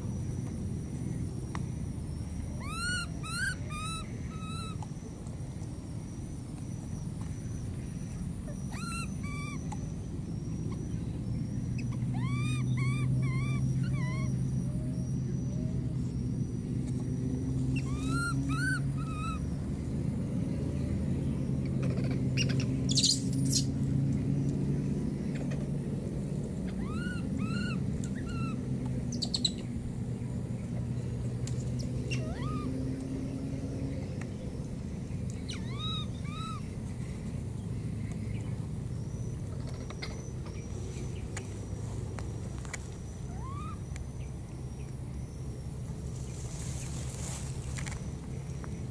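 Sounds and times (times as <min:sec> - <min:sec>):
steady low hum: 0:00.0 - 0:48.9
baby monkey coo calls: 0:02.5 - 0:04.8, 0:08.5 - 0:09.8, 0:11.8 - 0:14.8, 0:17.6 - 0:19.5, 0:21.6 - 0:23.7, 0:26.6 - 0:29.7, 0:32.1 - 0:32.8, 0:35.4 - 0:36.8, 0:43.2 - 0:43.9.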